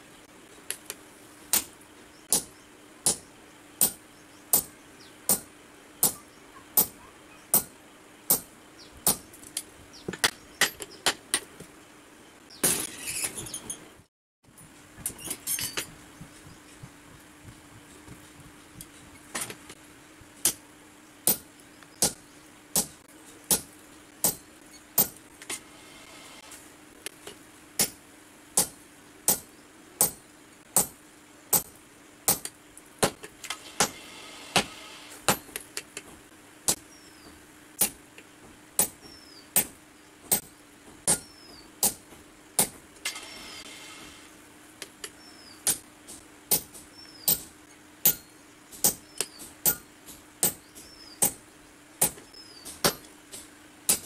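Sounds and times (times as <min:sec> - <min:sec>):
hammer striking hot metal on anvil: 0:02.3 - 0:04.7, 0:05.3 - 0:06.2, 0:06.8 - 0:07.7, 0:08.3 - 0:08.5, 0:25.0 - 0:25.2, 0:27.8 - 0:28.0, 0:28.6 - 0:29.4, 0:30.0 - 0:30.2, 0:30.8 - 0:31.7, 0:41.1 - 0:42.0, 0:48.0 - 0:49.0, 0:49.6 - 0:49.8
low hum: 0:14.0 - 0:22.6.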